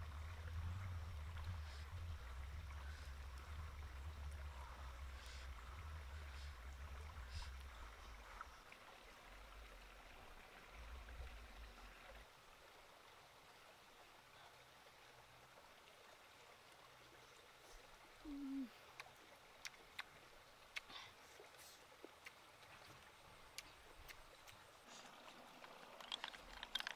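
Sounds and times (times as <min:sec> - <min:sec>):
low rumble: 0:00.0 - 0:08.6.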